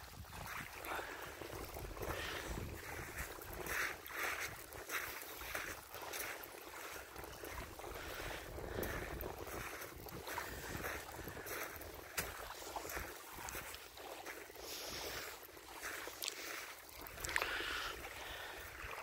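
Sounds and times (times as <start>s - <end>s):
wind rumble on microphone: 0.0s - 4.8s, 7.2s - 13.8s
small waves lapping on pebbles: 0.0s - 19.0s.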